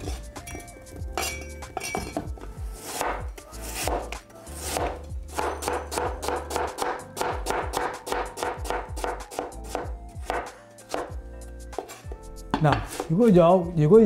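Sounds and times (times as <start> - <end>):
cleaver chopping on cutting board: 2.8 - 11.1.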